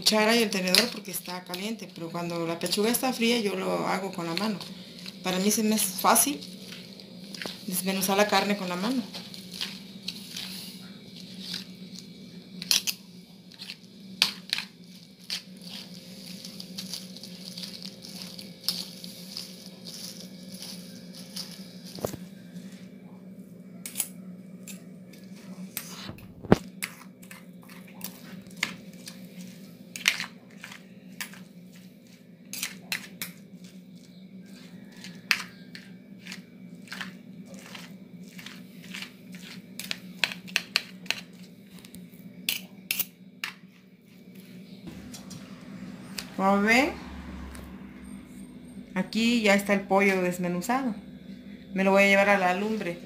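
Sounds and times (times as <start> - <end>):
cutlery scraping a plastic plate: 34.5 - 41.4
low hum: 44.3 - 53.0.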